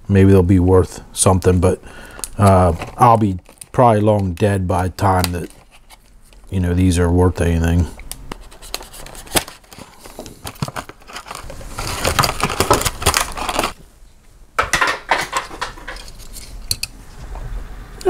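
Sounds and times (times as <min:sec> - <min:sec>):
plastic packaging crackling: 0:02.0 - 0:06.5, 0:08.1 - 0:13.8.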